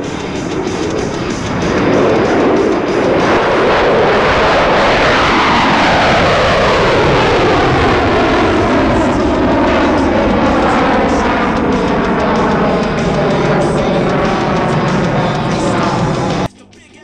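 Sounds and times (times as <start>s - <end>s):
jet engine roar: 0.0s - 16.6s.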